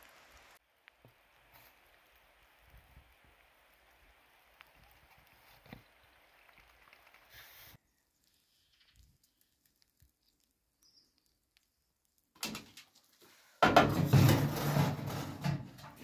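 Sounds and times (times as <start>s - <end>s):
metal shovel scraping ashes: 13.7s - 16.0s.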